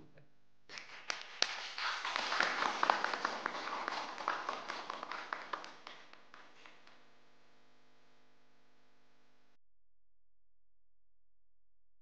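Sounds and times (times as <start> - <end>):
small group applauding: 0.7 - 7.0.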